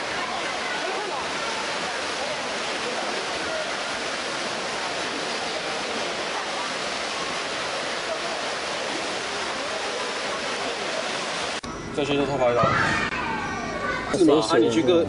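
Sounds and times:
swimmers splashing in echoing pool: 0.0 - 11.6
faint spectators' voices: 0.0 - 15.0.

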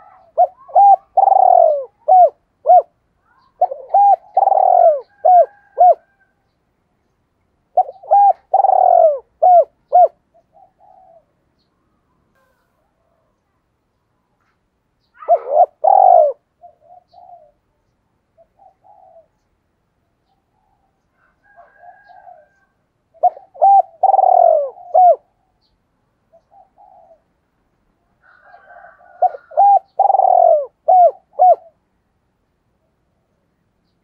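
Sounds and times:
dove cooing: 0.0 - 6.3, 7.7 - 11.4, 15.1 - 17.7, 18.4 - 19.5, 20.5 - 25.7, 26.3 - 27.4, 28.2 - 31.8.

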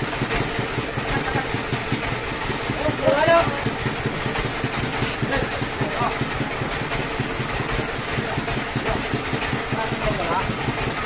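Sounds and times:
sawmill engine idling: 0.0 - 11.0.

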